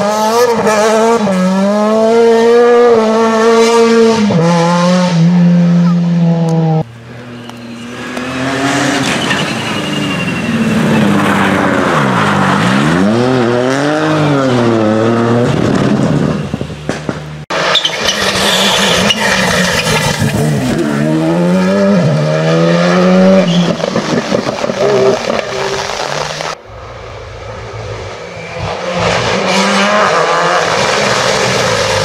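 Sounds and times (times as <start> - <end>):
rally car engine at full throttle: 0.0 - 32.0
tyre squeal: 7.3 - 11.4, 17.6 - 20.5, 23.2 - 24.0.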